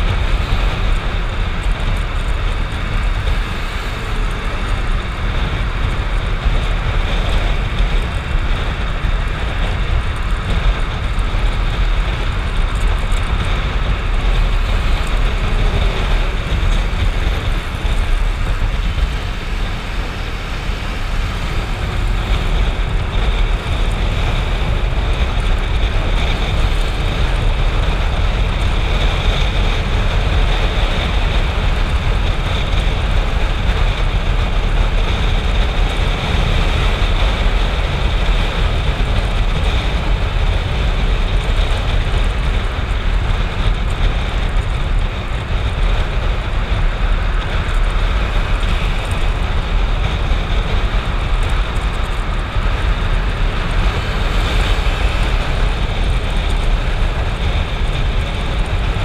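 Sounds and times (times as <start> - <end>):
motorcycle engine running: 0.0 - 59.0
wind rush over microphone: 0.0 - 59.0.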